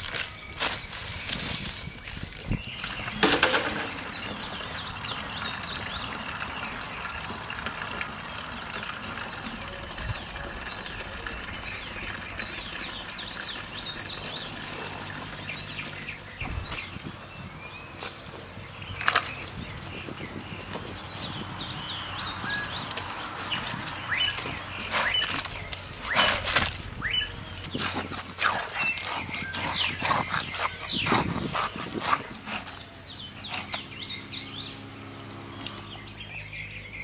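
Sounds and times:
birds chirping: 0:00.0 - 0:37.0
outdoor background noise: 0:00.0 - 0:37.0.

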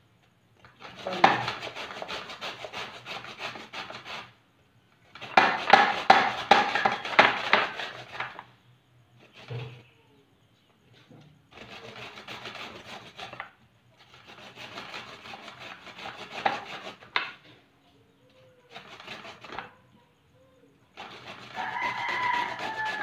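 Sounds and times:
carrot grating on a grater: 0:00.6 - 0:04.4, 0:05.2 - 0:08.5, 0:09.2 - 0:09.8, 0:11.5 - 0:17.2, 0:18.6 - 0:19.8, 0:20.9 - 0:23.0.

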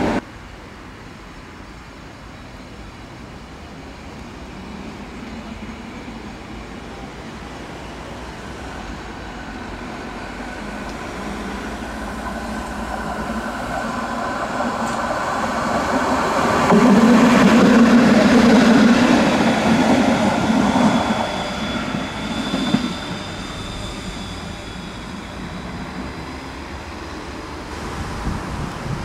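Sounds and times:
tram hum: 0:00.0 - 0:00.3, 0:02.4 - 0:29.0
tram running on rails: 0:00.0 - 0:29.0.

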